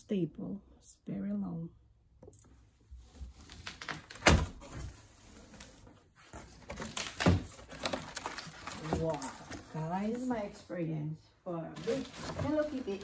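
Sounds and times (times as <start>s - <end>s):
cardboard flaps scraping and rustling: 11.8s - 13.0s.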